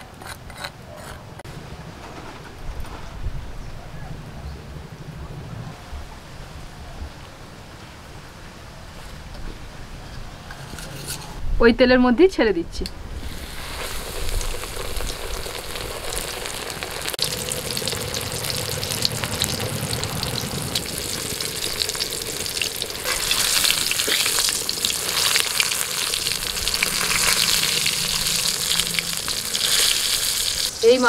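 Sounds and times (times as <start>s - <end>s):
fish sizzling in hot oil: 13.2s - 31.0s.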